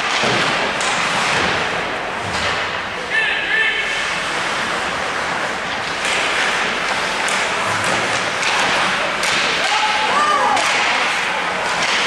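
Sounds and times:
skates scraping on ice: 3.9 - 12.0.

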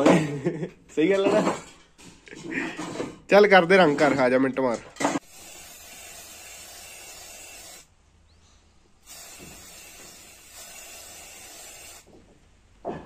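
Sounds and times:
spray-paint can hissing: 5.2 - 7.9, 9.0 - 12.1.

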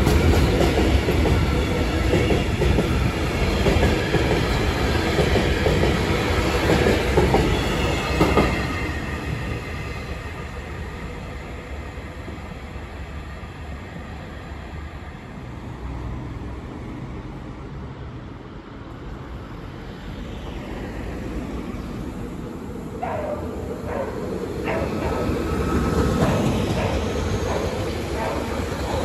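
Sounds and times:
freight train wheels clattering: 23.9 - 29.0.

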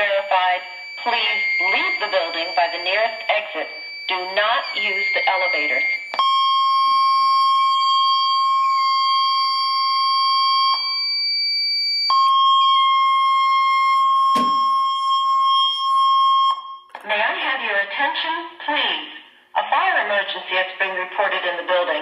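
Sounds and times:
high alarm beep: 0.0 - 16.9
sharp knock: 14.4 - 14.6.

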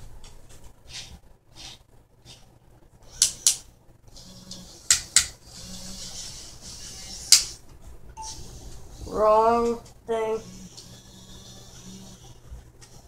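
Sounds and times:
small motors whirring: 3.1 - 7.6, 10.4 - 13.0.

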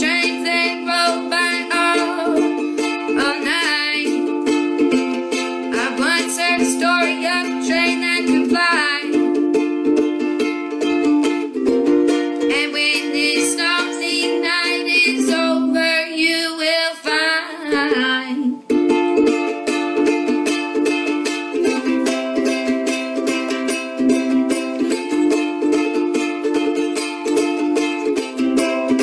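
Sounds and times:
person singing wordlessly: 0.0 - 4.3, 5.7 - 9.3, 12.5 - 18.7
ukulele strumming: 0.0 - 29.0.

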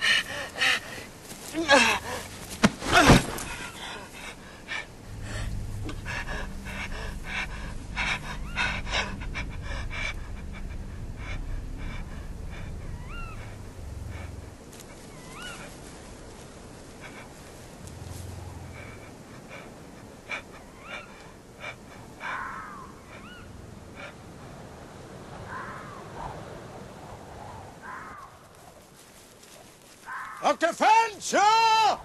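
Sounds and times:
person gasping and panting: 0.0 - 14.4
faint rustling: 0.0 - 22.6, 26.2 - 30.6
steady low drone: 3.3 - 24.8.

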